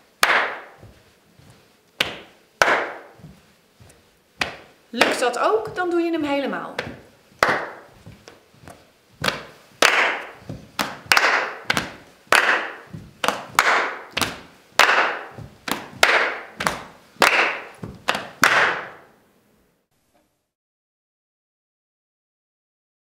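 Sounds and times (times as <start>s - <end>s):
hand claps and chest pats: 0.0s - 5.2s, 6.8s - 19.1s.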